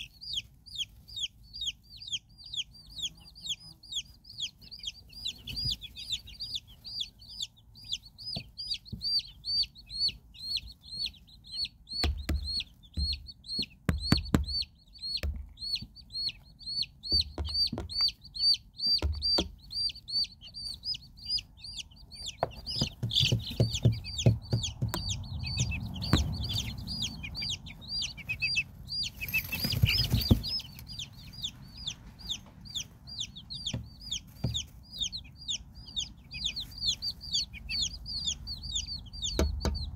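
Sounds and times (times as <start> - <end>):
chicks peeping: 0.0 - 39.9
birds rustling against microphone: 21.9 - 34.9
low knocks: 22.4 - 27.7.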